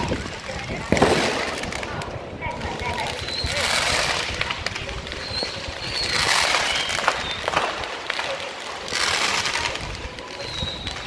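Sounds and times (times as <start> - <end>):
fireworks fountains hissing: 0.0 - 11.0.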